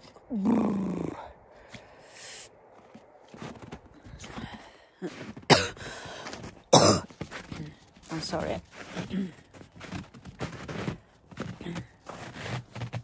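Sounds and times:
scuffing in snow: 2.7s - 13.0s
person coughing hard: 5.5s - 5.9s, 6.7s - 7.2s.

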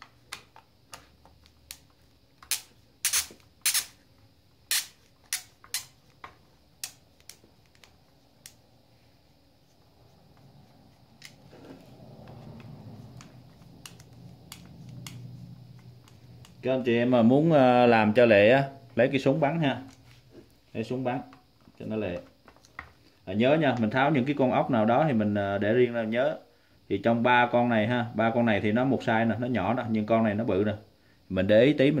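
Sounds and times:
screwdriver clicks and snaps: 2.4s - 3.9s.

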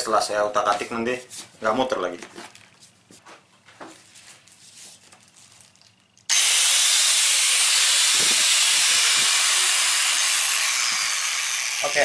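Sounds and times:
angle grinder running: 6.3s - 12.0s.

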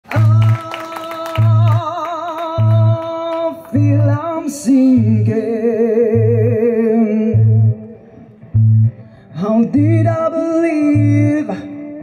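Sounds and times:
woman singing with vibrato: 0.1s - 7.8s
bass guitar low notes: 1.4s - 1.8s, 2.5s - 12.0s.

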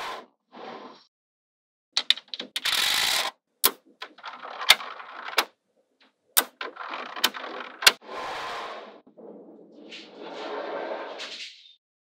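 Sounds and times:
magnetic balls clicking together: 2.0s - 8.0s.

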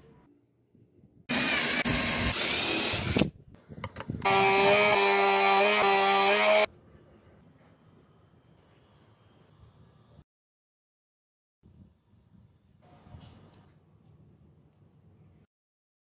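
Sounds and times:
table saw cutting plastic: 1.3s - 3.3s, 4.2s - 6.7s.

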